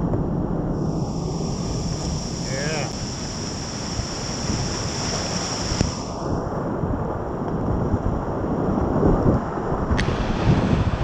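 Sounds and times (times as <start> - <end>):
wind buffeting microphone: 0.0 - 11.0
whitewater rushing: 0.8 - 6.4, 10.0 - 11.0.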